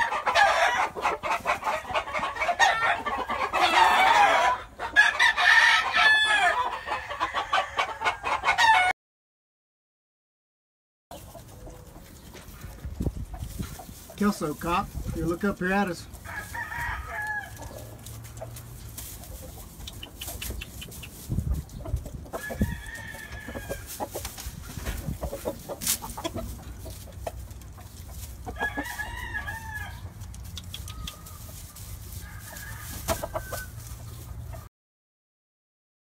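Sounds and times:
roosters crowing: 0.0 - 8.9, 15.7 - 34.7
clicks and rustles: 30.0 - 32.2.

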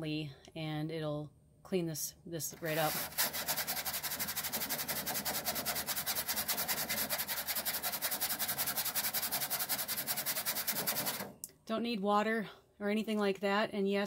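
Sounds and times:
toothbrush scrubbing mesh screen: 2.6 - 11.3.

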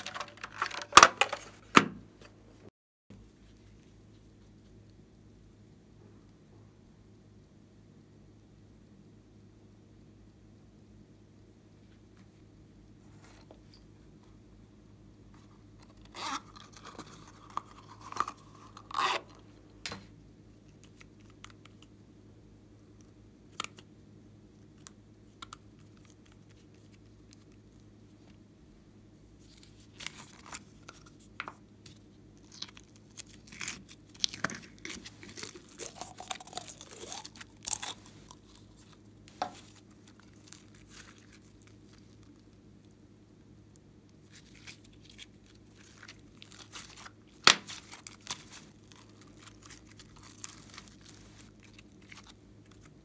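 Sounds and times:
plastic containers clicking and rustling: 0.0 - 1.8.

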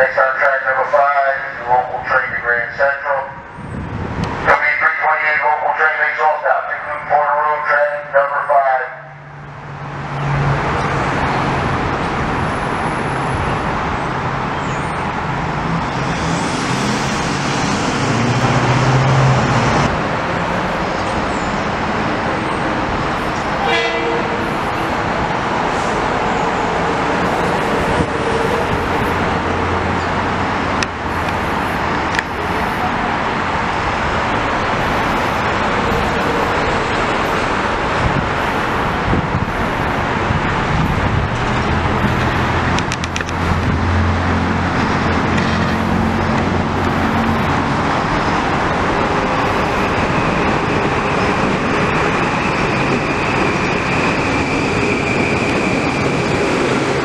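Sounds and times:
train wheels rumbling on rails: 9.5 - 57.0.

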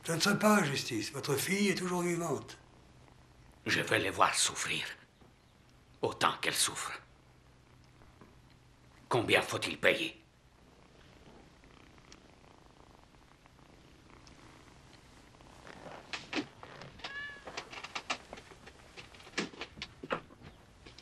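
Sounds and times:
cat purring faintly: 0.0 - 21.0
sharp clicks and knocks: 16.1 - 21.0.

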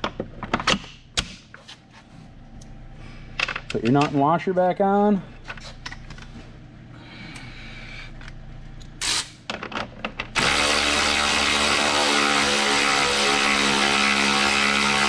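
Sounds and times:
cordless electric ratchet running: 10.4 - 15.0.

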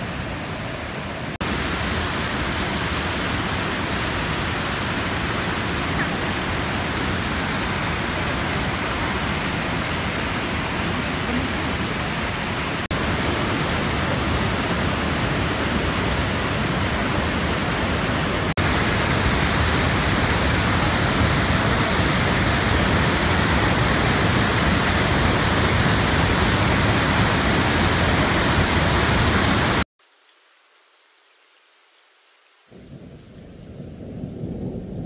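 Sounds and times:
creek rapids rushing: 0.0 - 29.8
waterfall pouring into pool: 18.6 - 29.9
faint hiss: 30.0 - 33.4.

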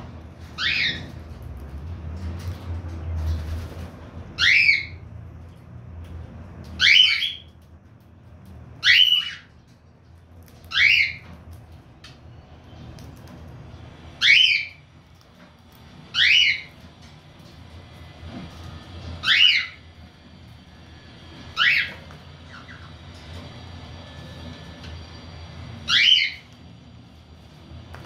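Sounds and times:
cockatiel squawks: 19.2 - 19.8, 21.6 - 22.0, 25.9 - 26.4.

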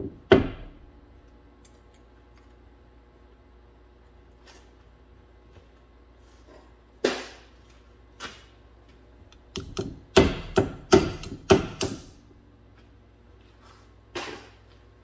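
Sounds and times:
hammer striking metal: 9.6 - 12.2.

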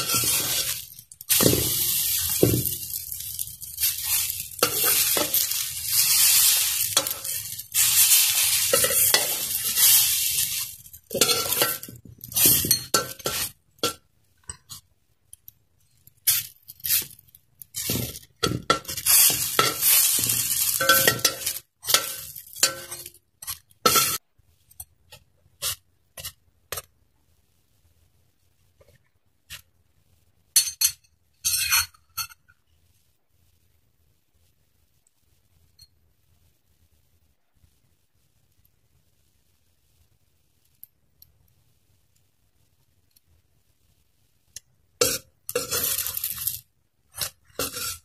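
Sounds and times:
metal spoons scraping wok: 0.0 - 14.8, 16.1 - 24.2, 31.4 - 32.5, 45.0 - 48.0
bread sizzling: 0.0 - 14.9, 15.5 - 24.3, 43.9 - 48.0.

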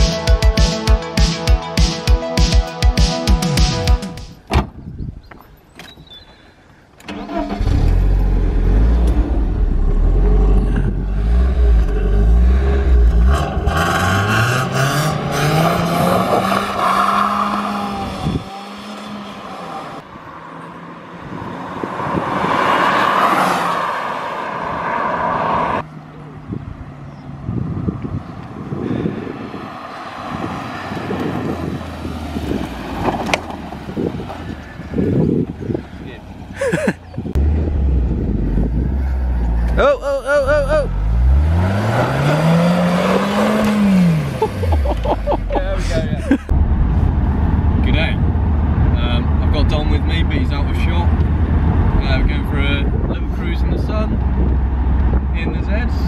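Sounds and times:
wind buffeting microphone: 4.5 - 6.2, 9.5 - 11.8, 17.9 - 18.9, 21.2 - 23.1, 26.4 - 39.8, 45.4 - 56.0
car starter cranking: 7.0 - 8.4
engine revving: 7.1 - 20.0, 37.3 - 52.8.

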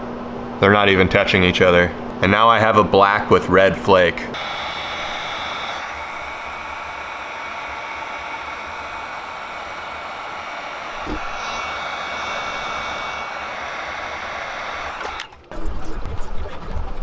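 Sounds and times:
heat gun blowing air: 4.4 - 15.4.

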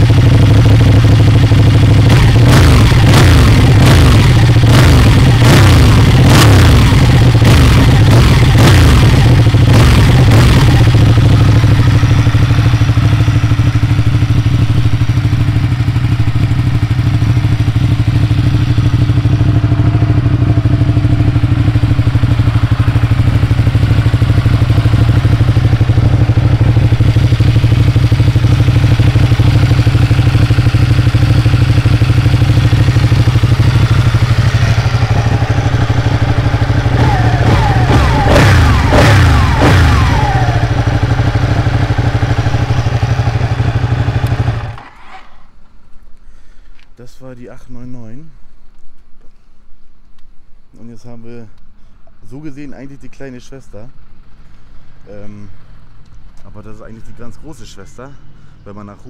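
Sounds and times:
motorcycle engine idling: 0.0 - 44.9, 53.2 - 59.0
motorcycle engine revving: 0.0 - 45.6.

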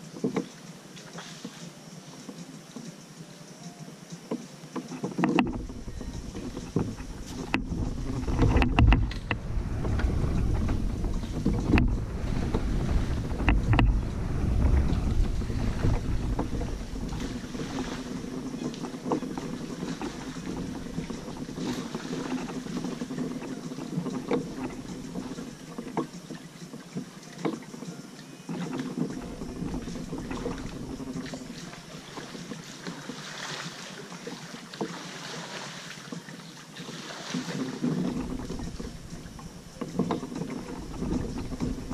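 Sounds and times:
kayak paddle splashing in water: 0.0 - 1.7, 4.3 - 41.9
small knocks: 4.3 - 33.2
wind buffeting microphone: 5.4 - 26.3, 29.0 - 32.4, 37.8 - 41.9.

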